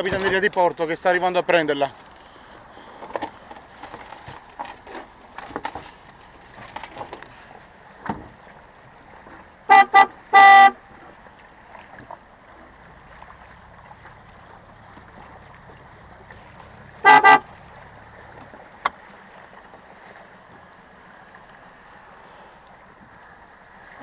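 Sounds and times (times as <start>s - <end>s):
water and boat noise: 0.0s - 24.0s
horn beeps and blast: 9.7s - 10.8s, 17.0s - 17.5s.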